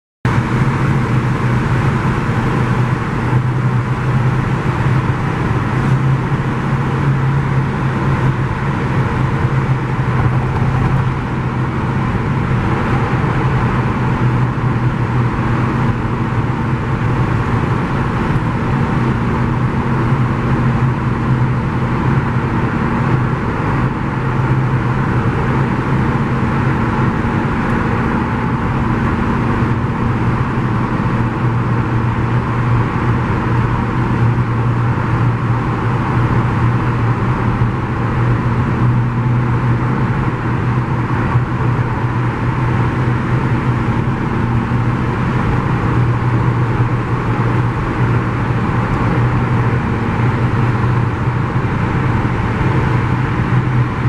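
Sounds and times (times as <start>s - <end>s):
car road noise in tunnel: 0.3s - 54.0s.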